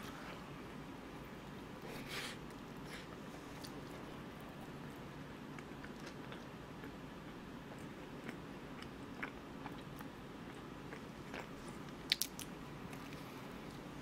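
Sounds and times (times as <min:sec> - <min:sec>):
person chewing: 0:05.6 - 0:13.2
crisp crackles of pastry bite: 0:11.9 - 0:13.2.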